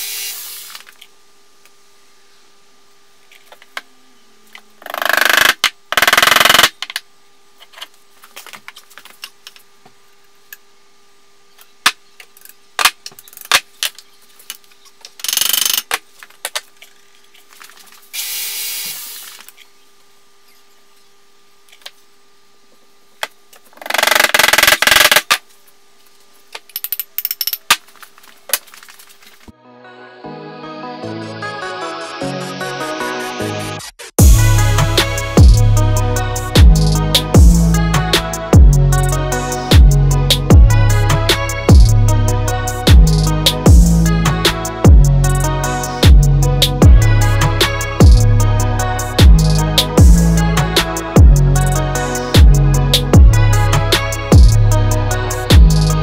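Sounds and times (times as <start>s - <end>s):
faint steady hum: 0.0s - 30.7s.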